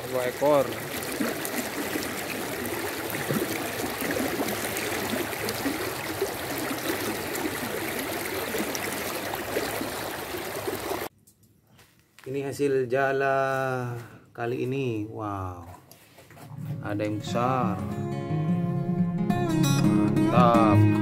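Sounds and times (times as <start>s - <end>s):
river water rushing: 0.0s - 11.1s
small splashes: 0.0s - 11.1s.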